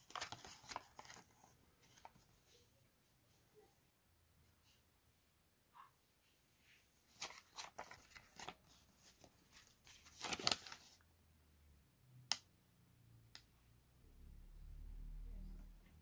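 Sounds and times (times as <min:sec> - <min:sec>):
banknotes crinkling and rustling: 0:00.0 - 0:02.5, 0:07.1 - 0:11.0.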